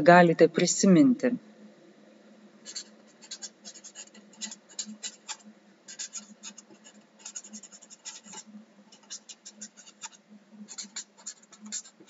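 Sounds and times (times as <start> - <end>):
marker scratching on paper: 2.6 - 12.0.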